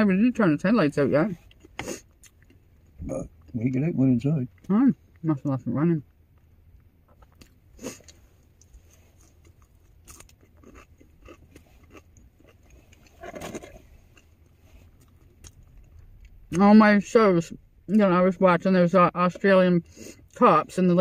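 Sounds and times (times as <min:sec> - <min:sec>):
person chewing fries: 0:01.4 - 0:03.5, 0:06.3 - 0:16.6.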